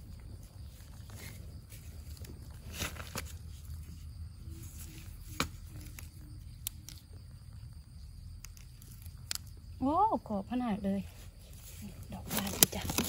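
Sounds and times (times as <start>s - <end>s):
stick scraping in soil: 0.2s - 7.1s.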